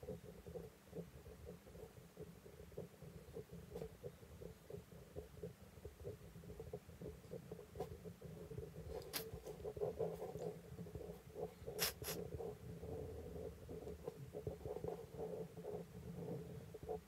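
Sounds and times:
pen scratching on paper: 0:08.9 - 0:12.5, 0:14.0 - 0:15.1.

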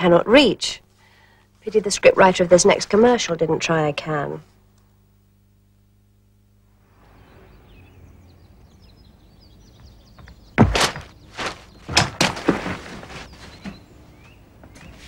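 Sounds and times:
faint outdoor ambience: 0:00.0 - 0:15.0
bird chirps: 0:07.0 - 0:11.9
loud thuds or knocks: 0:10.2 - 0:13.1.

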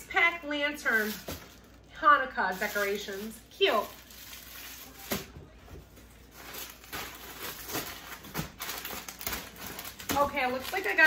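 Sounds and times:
packaging rustling: 0:02.5 - 0:05.3, 0:05.9 - 0:11.0.

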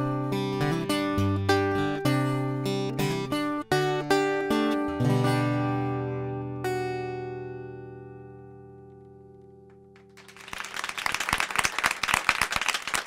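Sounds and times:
audience applause: 0:10.1 - 0:13.0.

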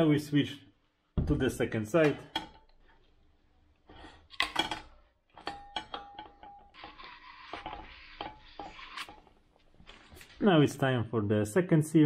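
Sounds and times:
metal rod knocking and scraping: 0:02.0 - 0:03.0, 0:03.8 - 0:09.4
cloth rubbing inside hub: 0:05.6 - 0:10.5.

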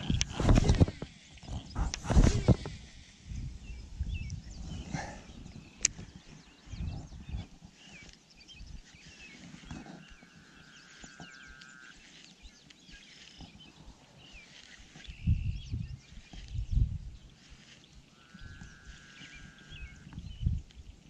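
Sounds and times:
low rumbles on microphone: 0:00.0 - 0:07.6, 0:15.0 - 0:17.6, 0:18.4 - 0:21.0
birds chirping and whistling: 0:00.0 - 0:21.0.

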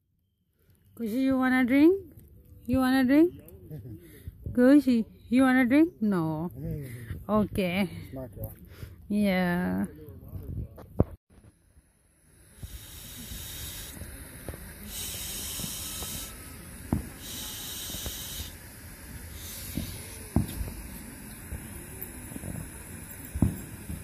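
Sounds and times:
high-pitched outdoor hiss: 0:11.0 - 0:24.0.

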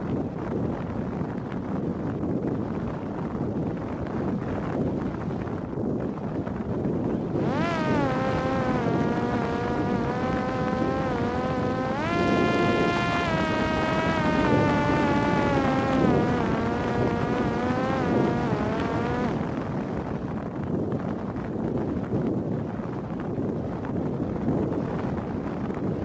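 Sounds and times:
wind rushing over microphone: 0:00.0 - 0:26.0
electric motor and propeller whining: 0:07.2 - 0:20.2.

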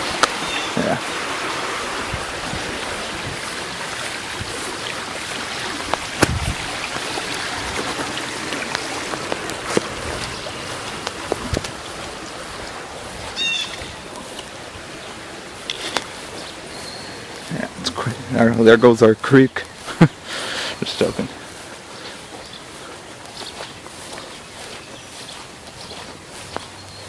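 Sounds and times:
flooded creek rushing: 0:00.0 - 0:27.0
high chirp: 0:16.4 - 0:17.4.

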